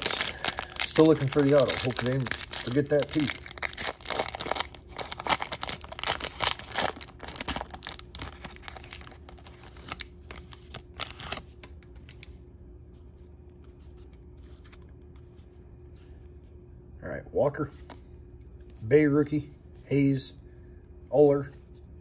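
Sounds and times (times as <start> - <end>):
foil wrapper crinkling and tearing: 0.0 - 12.3.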